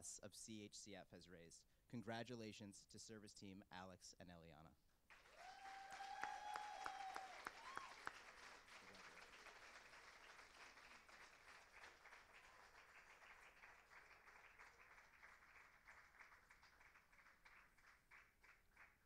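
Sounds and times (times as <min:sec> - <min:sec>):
audience applauding: 0:05.1 - 0:19.0.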